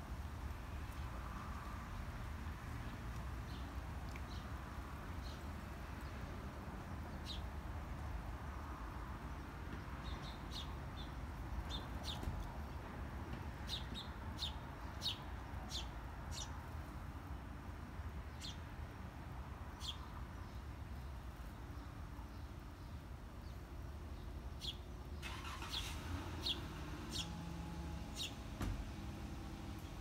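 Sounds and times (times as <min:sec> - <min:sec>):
sparrows chirping: 0:05.1 - 0:07.6, 0:09.8 - 0:12.8, 0:13.6 - 0:16.7, 0:18.3 - 0:18.8, 0:19.7 - 0:28.8
low steady background rumble: 0:20.4 - 0:30.0.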